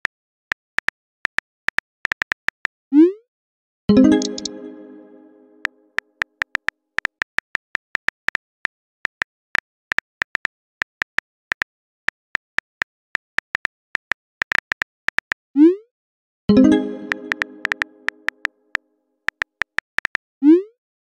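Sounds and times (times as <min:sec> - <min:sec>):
phone keyboard clicks: 0:04.1 - 0:04.6.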